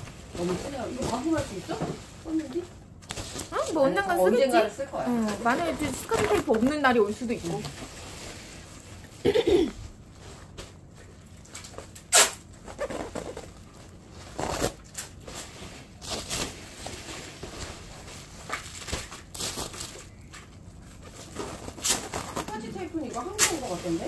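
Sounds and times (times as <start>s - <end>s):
bubble wrap rustling and crinkling: 0.0s - 9.1s, 10.0s - 24.0s
bubble wrap sharp crackles: 5.8s - 8.8s, 11.4s - 24.0s.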